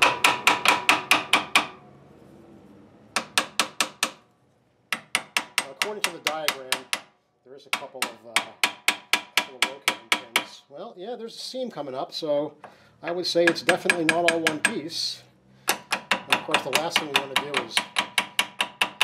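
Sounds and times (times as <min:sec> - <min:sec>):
hammer tapping on metal: 0:00.0 - 0:01.8, 0:04.9 - 0:07.1, 0:07.7 - 0:10.6, 0:13.5 - 0:14.8, 0:15.7 - 0:19.0.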